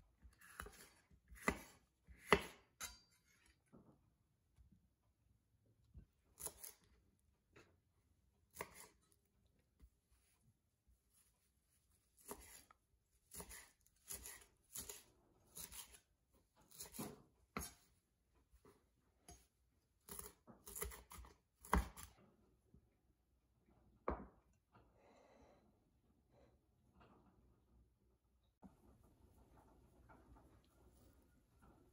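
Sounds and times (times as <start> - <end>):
knife chopping on wooden board: 0.4 - 3.1, 12.2 - 12.6, 13.3 - 15.0, 15.6 - 16.0, 16.7 - 17.9, 20.1 - 22.1.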